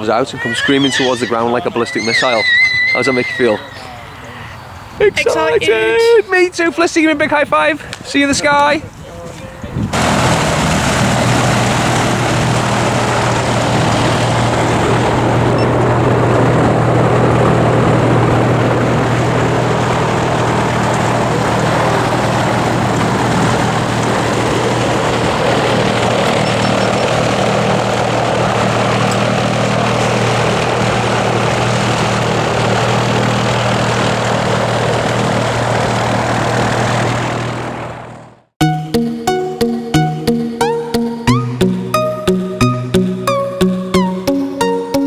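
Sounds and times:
propeller airflow rush: 6.5 - 45.0
propeller engine humming: 9.9 - 45.0.

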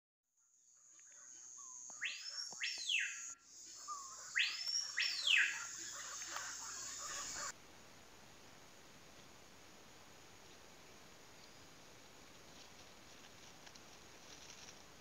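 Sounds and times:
bird calls sweeping up and down: 0.8 - 7.5.

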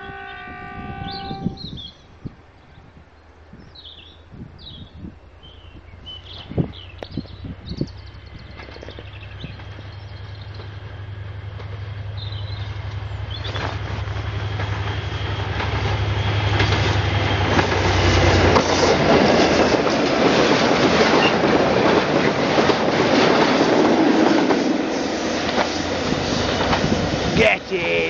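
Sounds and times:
locomotive engine drone: 5.4 - 19.4.

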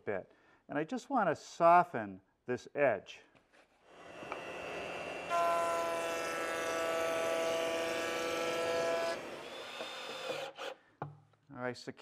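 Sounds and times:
router whining: 3.9 - 10.8.

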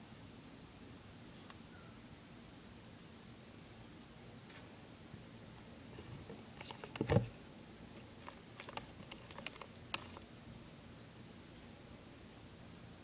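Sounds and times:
lizard feet scrabbling on plastic: 8.0 - 10.2.

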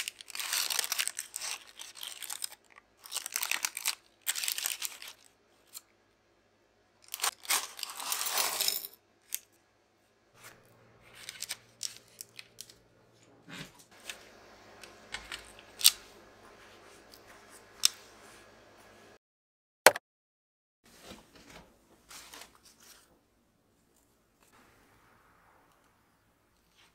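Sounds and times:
parchment paper crinkling: 0.0 - 5.9, 10.4 - 12.9
faint steady hum: 9.3 - 19.2.

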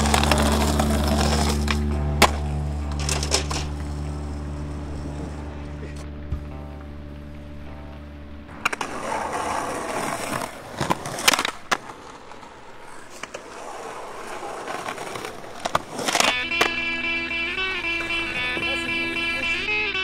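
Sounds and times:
skateboard clacks: 0.0 - 4.0, 8.5 - 17.1
skateboard wheels rumbling: 0.0 - 19.4.

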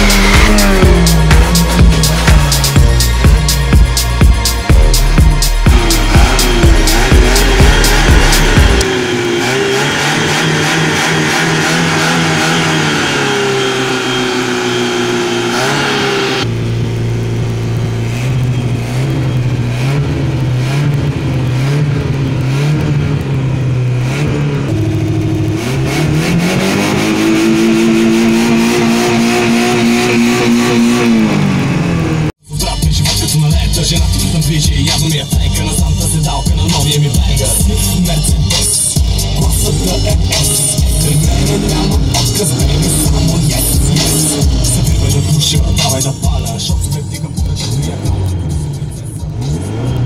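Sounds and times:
car engine revving: 0.0 - 50.0.

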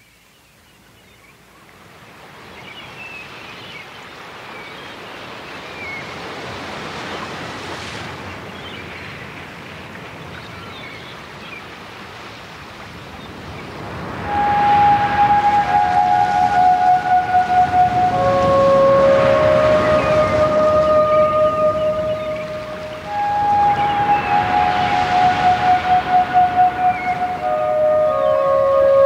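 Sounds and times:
ocean waves breaking: 4.0 - 29.0
faint high chirps: 14.2 - 29.0.

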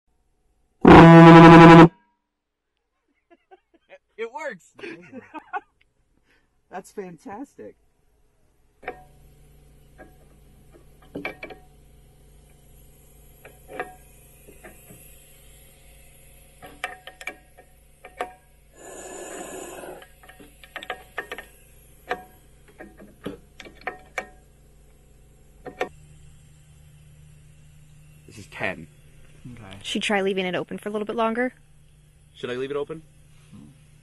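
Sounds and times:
steady low hum: 0.8 - 1.9, 17.5 - 34.0
air hiss: 18.6 - 23.6, 25.0 - 30.1.

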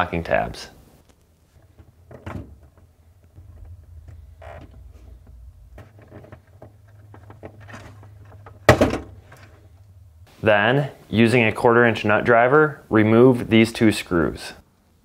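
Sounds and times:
low steady hum: 0.0 - 15.0
wires rustling: 0.8 - 10.3.

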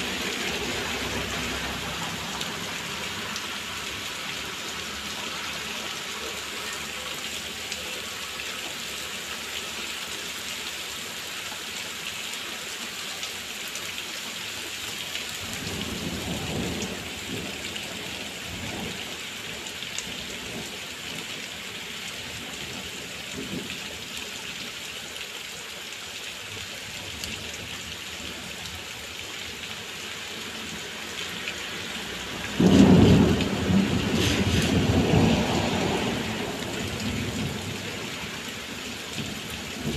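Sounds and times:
heavy rain falling: 0.0 - 39.9
thunder rumbling: 32.5 - 38.1
loud thunderclap: 32.6 - 37.6.

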